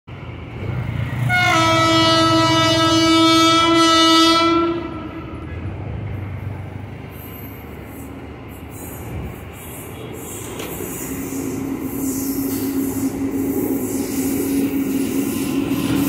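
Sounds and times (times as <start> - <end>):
trains rumbling: 0.1 - 16.0
locomotive horn blast: 1.2 - 5.3.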